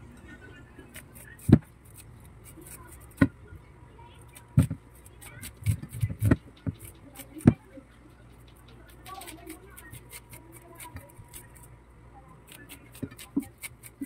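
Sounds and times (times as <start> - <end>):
knife cutting corn kernels: 0.9 - 3.3, 8.4 - 11.7, 12.5 - 14.0.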